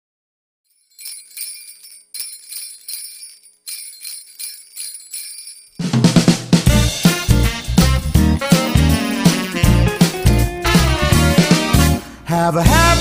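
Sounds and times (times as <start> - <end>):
sleigh bells shaken: 0.7 - 6.1, 7.9 - 11.5
pop band with bass and drums: 6.0 - 13.0.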